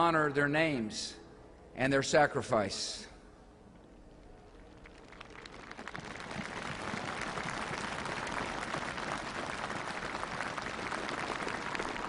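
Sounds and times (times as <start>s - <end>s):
large crowd applauding: 4.7s - 12.0s.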